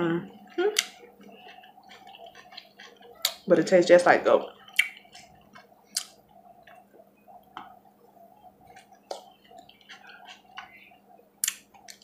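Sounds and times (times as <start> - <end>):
chewing and mouth clicks: 0.4 - 3.5, 4.5 - 7.8, 8.6 - 12.0
lip smacks: 0.7 - 3.5, 4.6 - 6.8, 11.4 - 12.0.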